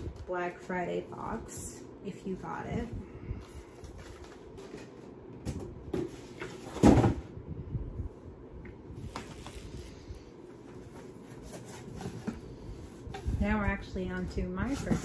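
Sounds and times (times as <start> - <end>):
packaging handling noises: 9.0 - 13.4.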